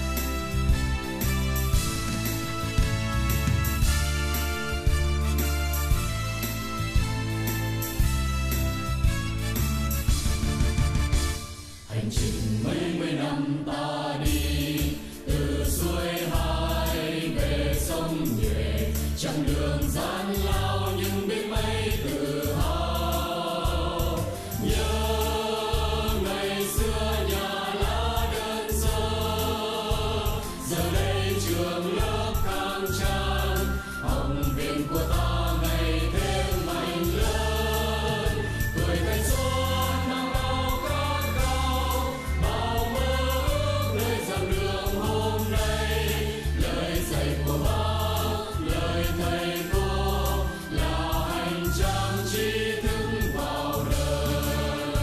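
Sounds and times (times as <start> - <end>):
full band backing: 0.0 - 11.9
group of voices singing: 11.8 - 55.0.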